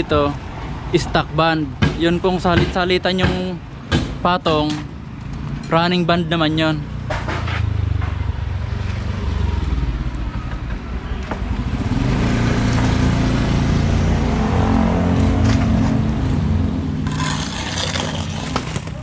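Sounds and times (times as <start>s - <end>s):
vehicle engine passing: 11.5s - 18.8s.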